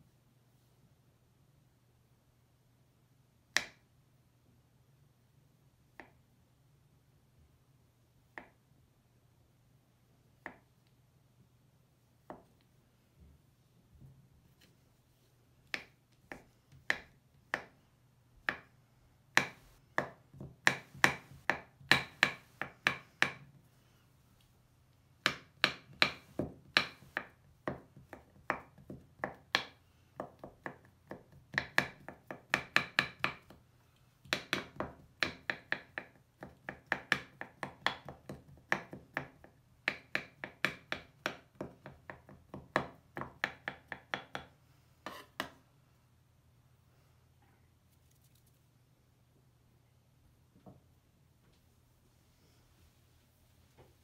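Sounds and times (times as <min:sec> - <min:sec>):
knife chopping on wooden board: 0:19.4 - 0:23.4, 0:25.2 - 0:33.6.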